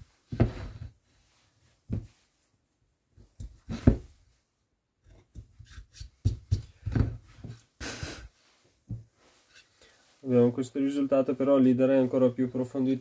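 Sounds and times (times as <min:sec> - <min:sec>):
knocks and taps of wood and tools: 0:03.2 - 0:04.0, 0:05.1 - 0:07.6.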